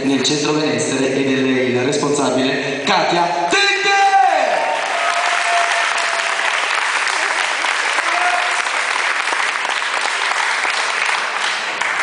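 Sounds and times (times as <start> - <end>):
crowd applauding: 4.6 - 12.0.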